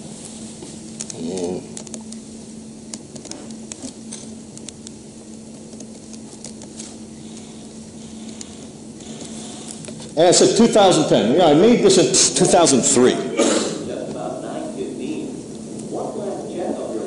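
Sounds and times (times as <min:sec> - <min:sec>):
low hum: 0:00.0 - 0:17.0
small clicks and crackles: 0:00.2 - 0:02.3, 0:02.9 - 0:10.2.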